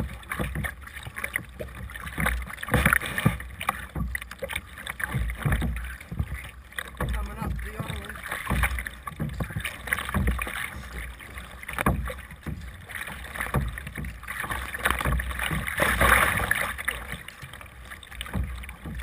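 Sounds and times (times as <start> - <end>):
paddle strokes splashing: 0.0 - 19.0
water slapping the hull: 0.0 - 19.0.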